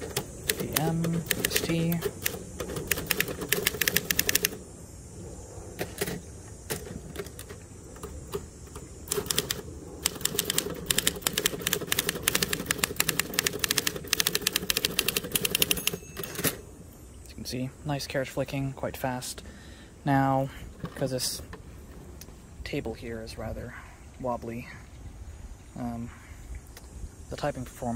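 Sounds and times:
typewriter keystrokes clacking: 0:00.0 - 0:04.6, 0:05.8 - 0:16.6
steady low hum: 0:00.0 - 0:27.9.

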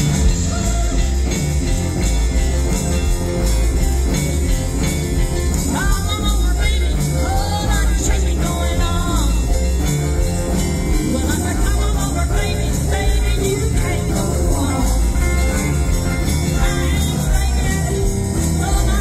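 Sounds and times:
rock and roll band playing: 0:00.0 - 0:19.0
woman singing: 0:05.6 - 0:10.0, 0:10.9 - 0:19.0.

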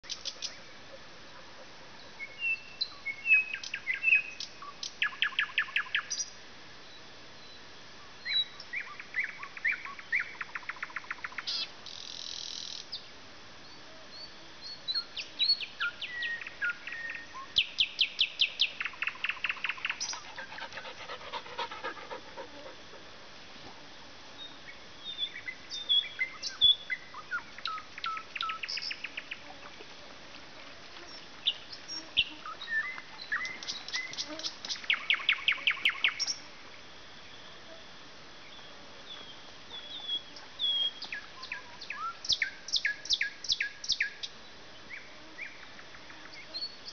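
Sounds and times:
nightingale singing: 0:02.1 - 0:20.5, 0:24.4 - 0:29.5, 0:31.0 - 0:36.5, 0:38.4 - 0:46.9.

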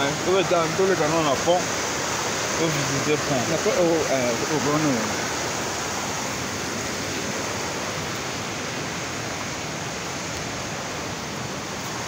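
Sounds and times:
river water flowing: 0:00.0 - 0:12.0.

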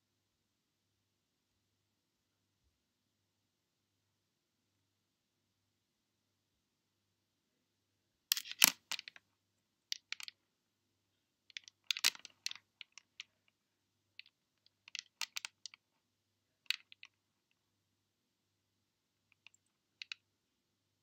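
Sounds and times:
necklace clasp clicking: 0:08.3 - 0:09.2.

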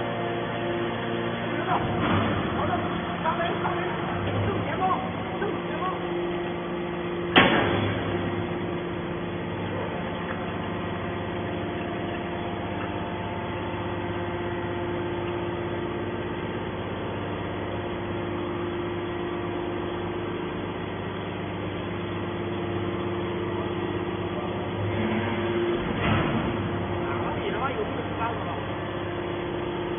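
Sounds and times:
hydraulic machine humming: 0:00.0 - 0:29.9
sharp bang: 0:07.3 - 0:08.1.

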